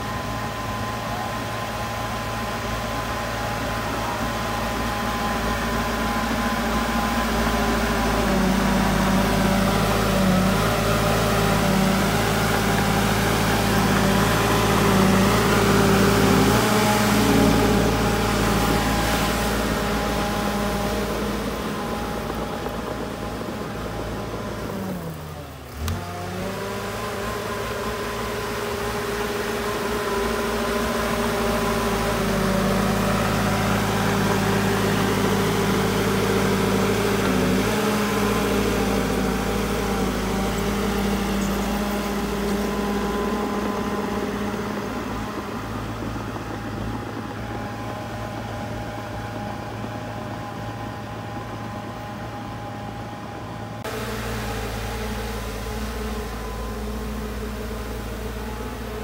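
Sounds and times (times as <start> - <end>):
heavy machinery diesel engine running: 0.0 - 59.0.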